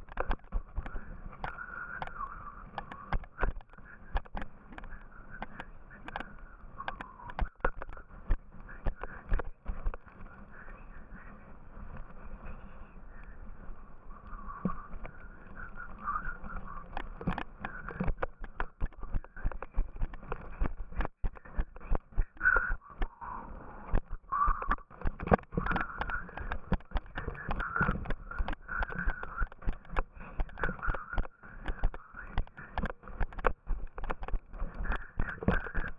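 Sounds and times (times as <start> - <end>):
sled knocking and rattling: 14.6 - 23.2, 23.9 - 35.9.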